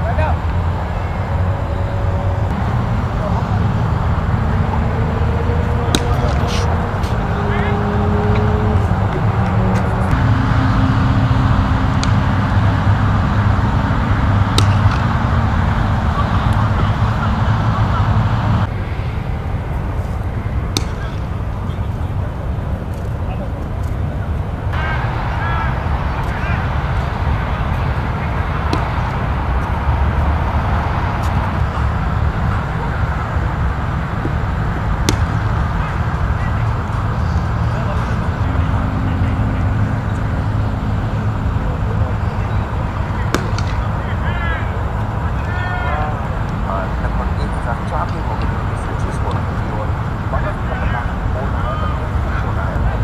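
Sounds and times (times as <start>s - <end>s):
low outdoor rumble: 0.0s - 53.0s
cricket bat hitting ball: 5.9s - 6.7s, 14.4s - 15.2s, 20.7s - 21.2s, 28.6s - 29.3s, 34.2s - 35.7s, 43.2s - 43.9s.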